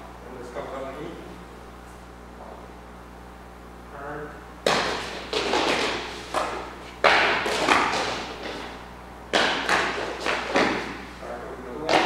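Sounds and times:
feet stamping on wooden floor: 4.7 - 11.0.

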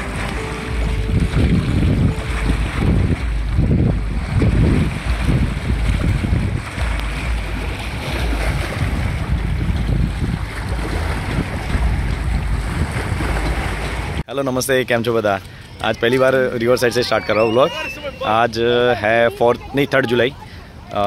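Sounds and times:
river water splashing on rocks: 0.0 - 14.2
wind gusting on microphone: 0.0 - 14.2.

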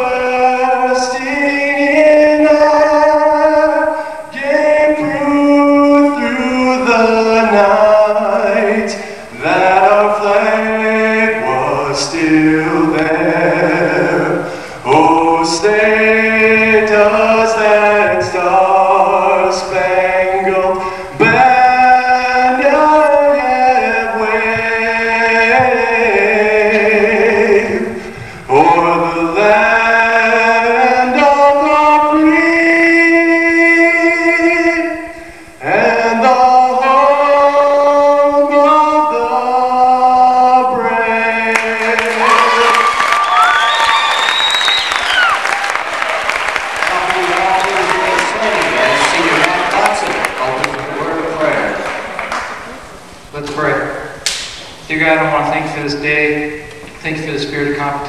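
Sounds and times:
man singing unaccompanied: 0.0 - 43.0.

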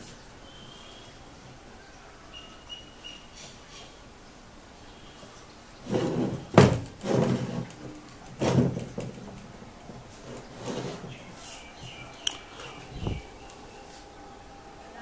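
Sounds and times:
telephone base scraping table: 5.8 - 9.1, 10.1 - 11.3.

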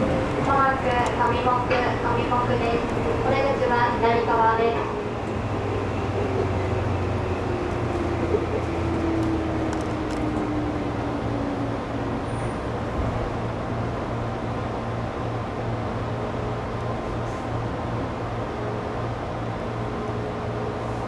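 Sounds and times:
electric train hum and rumble: 0.0 - 21.0.

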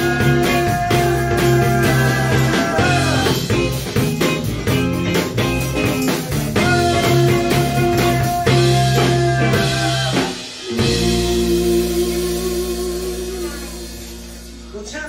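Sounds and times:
drum kit steady beat: 0.0 - 15.0
electric guitar: 0.0 - 15.0
tambourine: 0.4 - 9.0.

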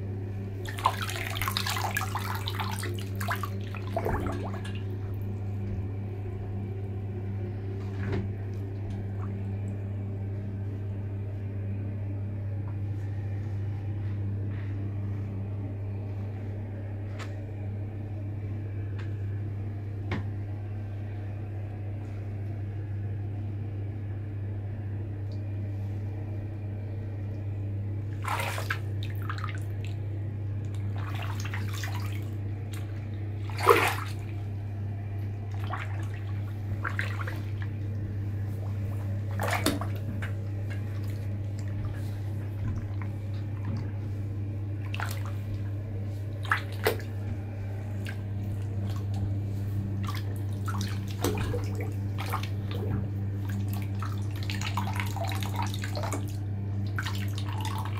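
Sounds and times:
low hum: 0.0 - 57.9
bathwater splashing: 0.6 - 5.6, 28.1 - 30.0, 30.6 - 57.9.

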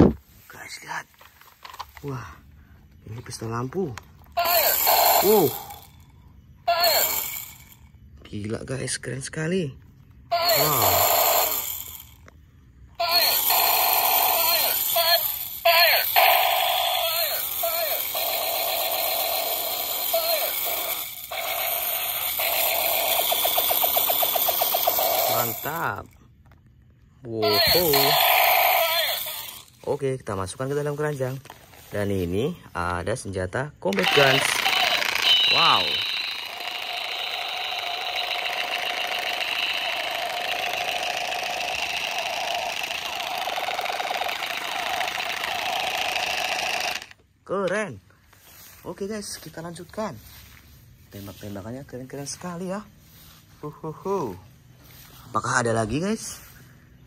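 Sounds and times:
toy pistol electronic firing tone: 4.4 - 5.7, 13.0 - 25.9, 27.5 - 29.6, 33.9 - 47.2.

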